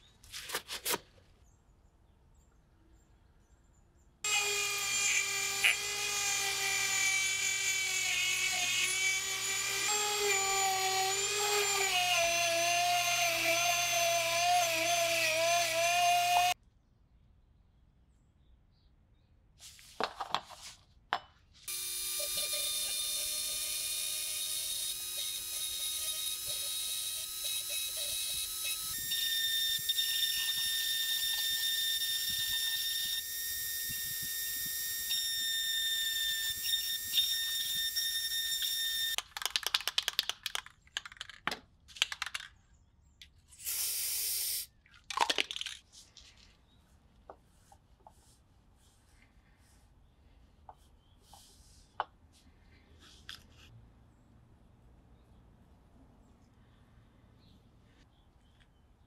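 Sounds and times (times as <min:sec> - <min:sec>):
rotary tool whining: 0:04.3 - 0:16.6, 0:21.7 - 0:39.2.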